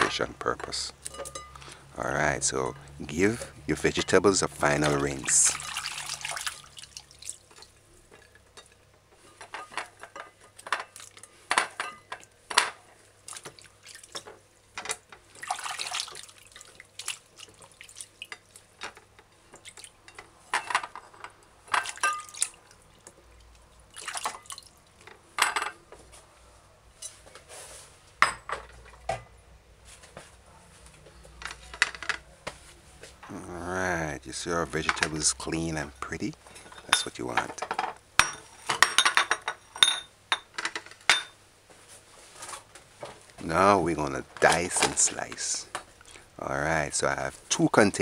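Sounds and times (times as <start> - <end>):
water splashing and dripping: 4.8 - 8.3, 13.2 - 14.2, 15.3 - 18.8, 19.6 - 20.0, 21.8 - 25.0.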